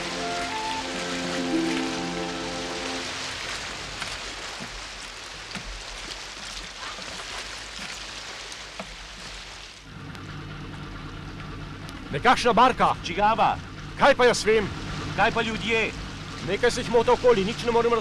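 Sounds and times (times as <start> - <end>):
seawater splashing: 0.0 - 18.0.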